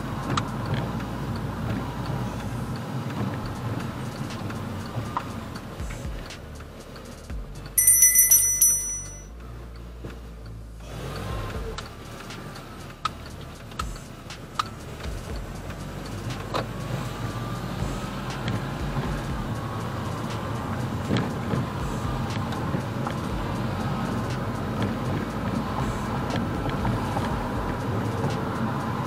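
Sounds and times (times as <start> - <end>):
car engine and tyre noise: 0.0 - 29.0
bright chime: 7.8 - 9.3.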